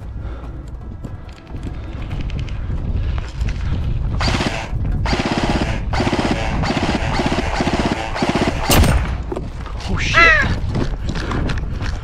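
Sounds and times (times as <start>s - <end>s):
airsoft rifle rapid clicking: 4.2s - 8.9s.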